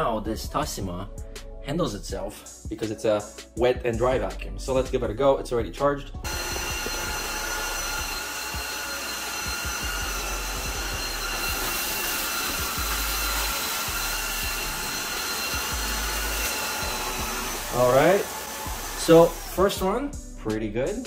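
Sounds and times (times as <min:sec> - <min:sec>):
vacuum mop suction and whine: 0:06.2 - 0:20.0.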